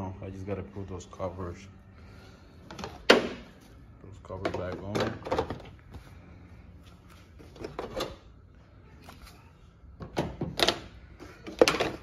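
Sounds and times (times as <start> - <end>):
covers knocking and clicking: 4.3 - 5.7.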